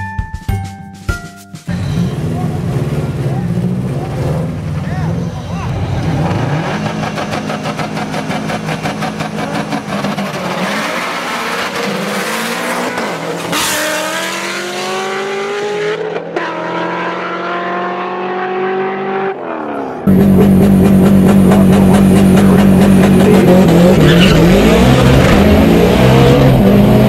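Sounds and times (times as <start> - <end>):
car engine accelerating: 1.7 - 27.0
car engine at high revs: 1.7 - 27.0
tires squealing: 21.5 - 26.7.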